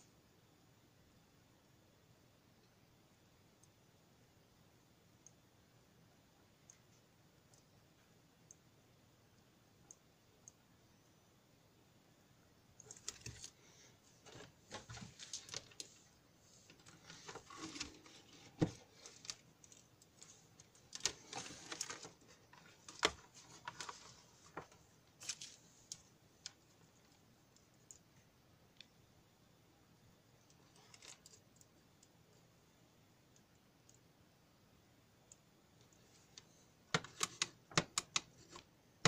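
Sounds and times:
wires and clips being handled: 12.8 - 28.1, 30.4 - 32.2, 35.3 - 38.7.

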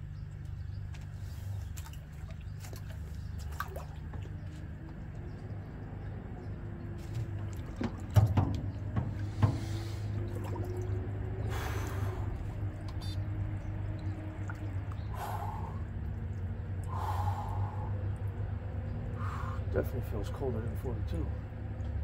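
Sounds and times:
steady low hum: 0.0 - 22.0
water sloshing in tank: 0.8 - 16.9
sharp knocks: 7.8 - 9.8
man breathing and gasping: 16.8 - 18.0.

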